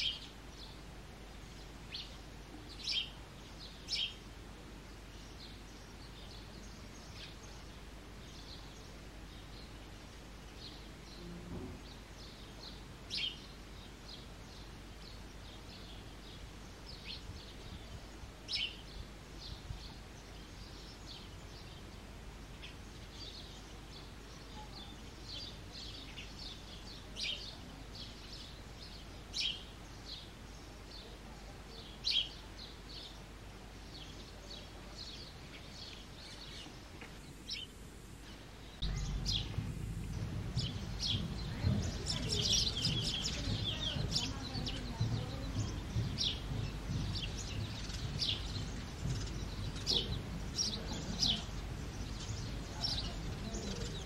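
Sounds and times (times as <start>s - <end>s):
sparrow chirping: 0.0s - 54.0s
low background rumble: 37.3s - 54.0s.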